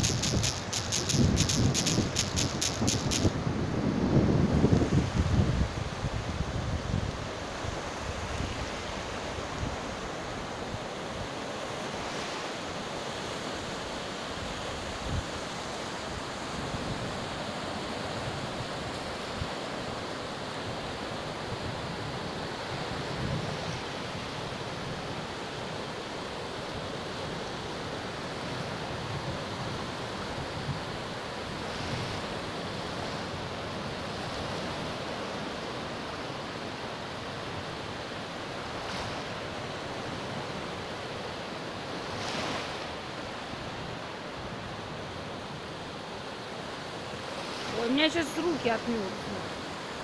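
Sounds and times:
wind on microphone: 0.0 - 8.8, 22.9 - 24.3
waves washing up beach: 0.0 - 50.0.

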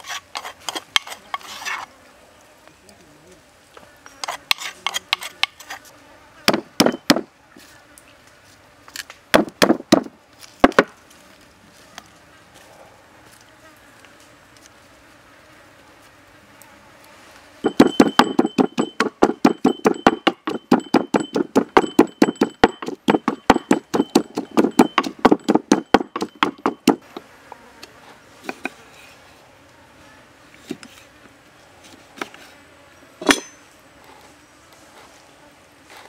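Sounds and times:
wooden pestle pounding in mortar: 17.6 - 27.0.

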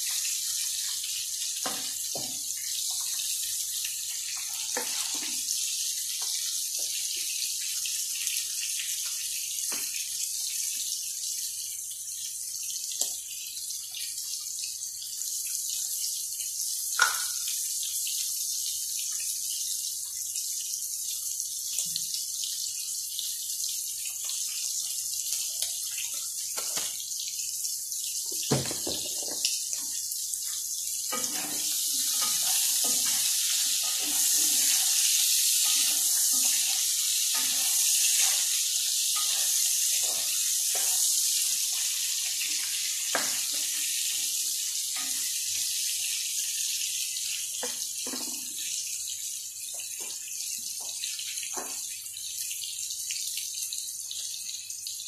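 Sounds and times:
shrimps sizzling in hot oil: 0.0 - 54.2
spatula knocking and scraping pan: 31.1 - 38.6, 39.2 - 41.2.

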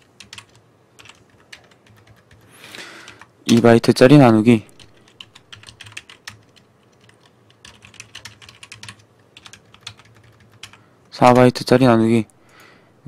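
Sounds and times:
keyboard typing: 0.0 - 3.8, 4.7 - 11.5
people speaking: 3.5 - 4.7, 11.2 - 12.3.

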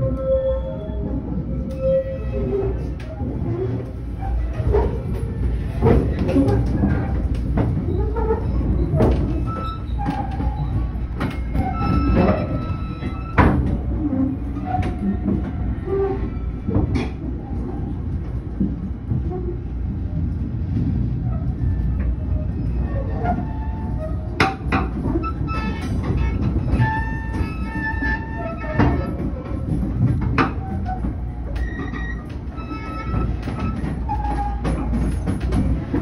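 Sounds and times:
train clanks and knocks: 0.0 - 36.0
train rumbling: 0.0 - 36.0.

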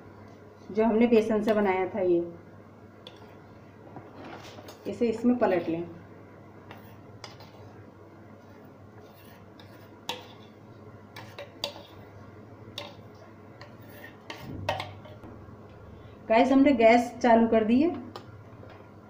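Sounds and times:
metal spoon scraping batter: 6.7 - 7.8, 8.4 - 12.1, 12.8 - 15.2.

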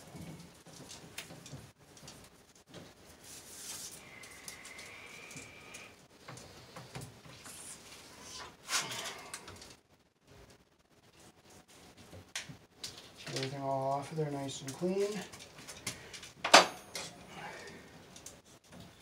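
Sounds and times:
cable sheathing rustling and scraping: 0.0 - 19.0.

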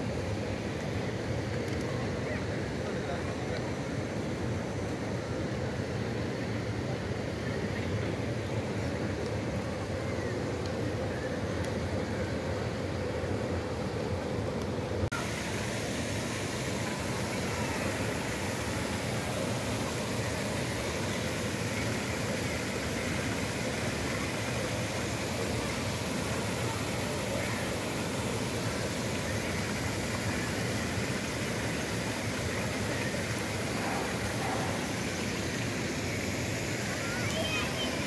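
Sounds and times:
outdoor rushing hiss: 12.6 - 38.0.

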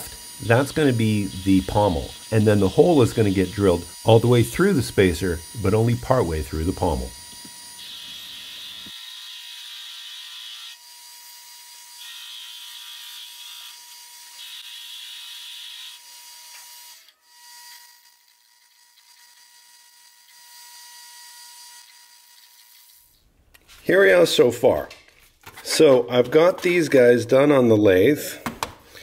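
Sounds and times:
lathe cutting tool hissing: 0.0 - 10.6
lathe whine: 0.0 - 10.8
drill bit boring into metal: 0.0 - 23.0.

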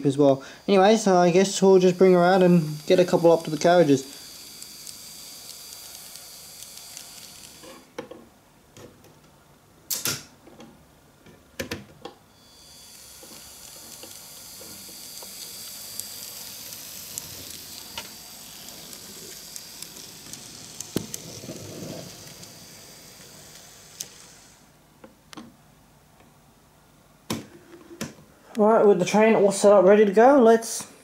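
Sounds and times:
small motor hiss: 0.3 - 7.9, 12.3 - 24.8.

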